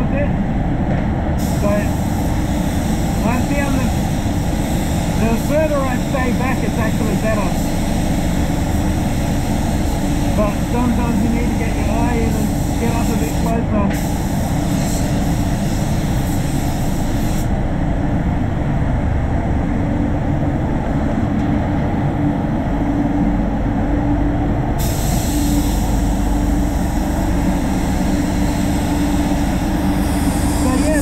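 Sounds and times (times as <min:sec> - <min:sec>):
low rumble of booth airflow: 0:00.0 - 0:31.0
spray gun air hissing: 0:01.4 - 0:17.5, 0:24.8 - 0:31.0.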